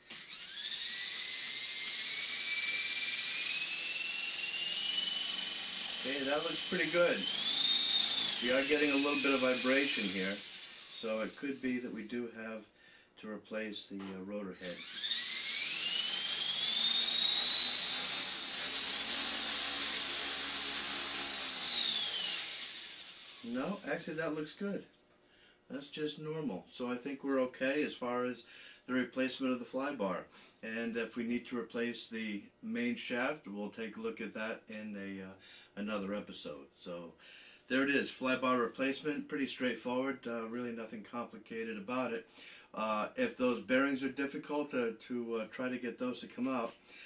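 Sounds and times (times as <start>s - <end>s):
helicopter motor whine spooling up: 0.0s - 12.2s, 14.6s - 24.6s.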